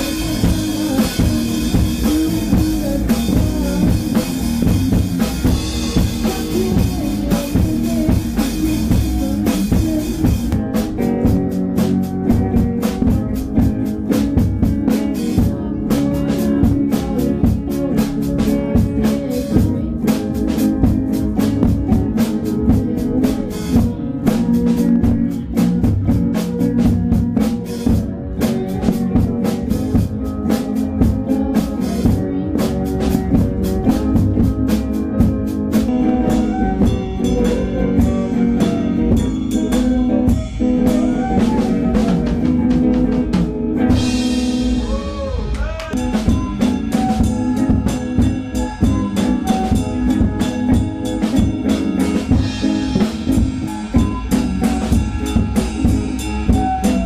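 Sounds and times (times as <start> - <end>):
drum kit beat: 0.0 - 57.0
electric guitars: 0.0 - 57.0
keyboard: 0.0 - 57.0
flute: 36.0 - 38.8, 40.2 - 43.0, 44.8 - 51.0, 52.7 - 57.0.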